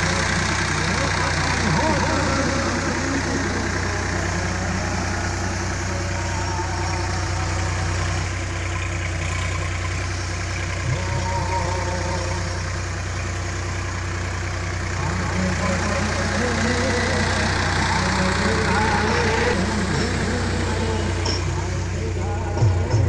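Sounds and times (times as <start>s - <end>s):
tractor diesel engine under load: 0.0s - 23.0s.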